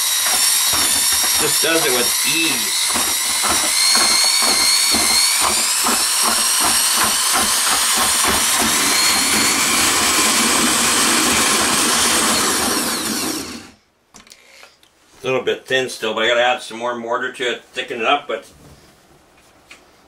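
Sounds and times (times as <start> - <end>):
paddle churning mortar: 0.0 - 13.7
mixer motor whining: 0.0 - 13.8.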